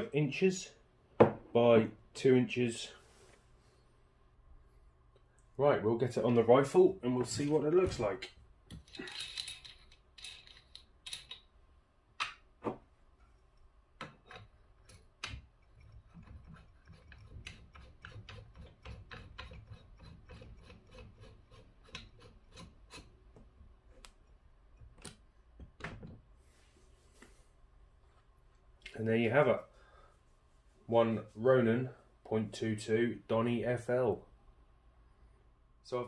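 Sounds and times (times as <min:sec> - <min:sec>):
metal rubbing: 0:15.6 - 0:23.2.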